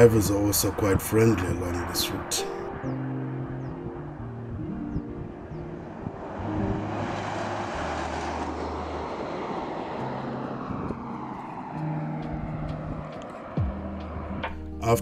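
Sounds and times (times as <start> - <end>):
car passing at speed: 0.0 - 14.8
background music with bass: 12.2 - 15.0.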